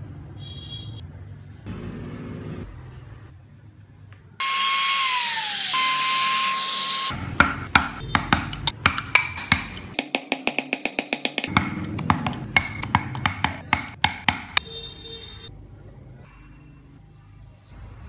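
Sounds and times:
rotary tool whining: 4.4s - 7.1s
percussive music with wood blocks: 7.3s - 14.6s.

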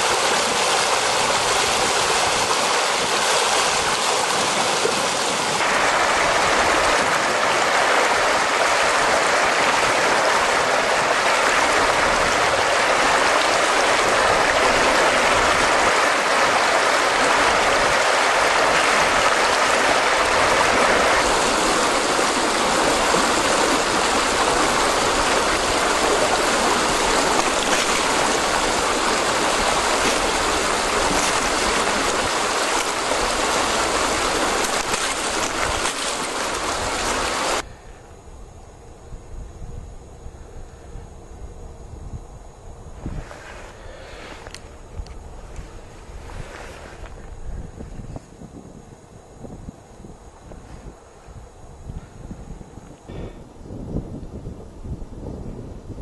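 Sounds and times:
floodwater rushing: 0.0s - 37.6s.

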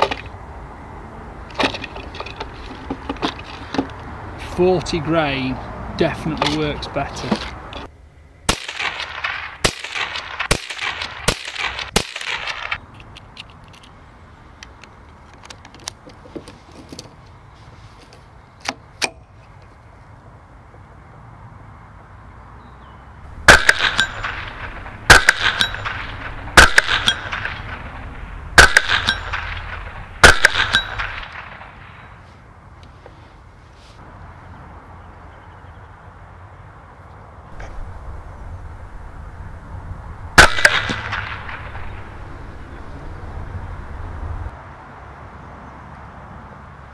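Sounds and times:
suppressed rifle shots: 8.5s - 12.8s, 23.5s - 27.9s, 28.6s - 31.6s, 40.4s - 42.0s.

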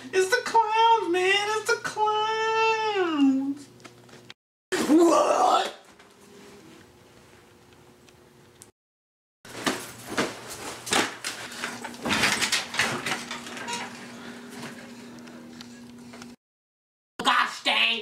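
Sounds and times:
rustling of clothing and bedding: 9.5s - 15.2s.

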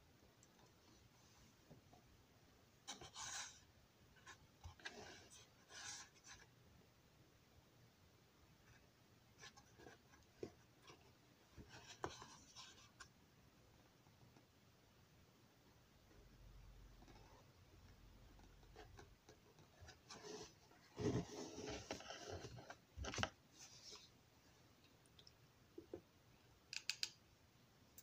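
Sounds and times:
small clicks: 26.7s - 27.2s.

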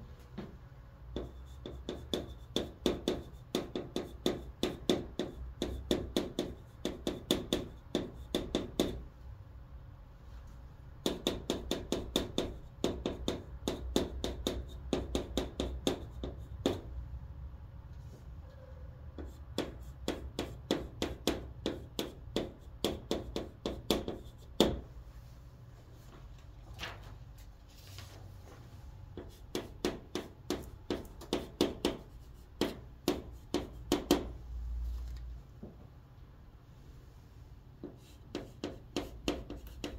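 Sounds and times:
chalk tapping and scratching on board: 1.1s - 9.1s, 11.0s - 16.9s, 19.2s - 24.9s, 29.1s - 34.3s, 37.8s - 39.9s
chalk strokes on chalkboard: 37.8s - 39.9s.

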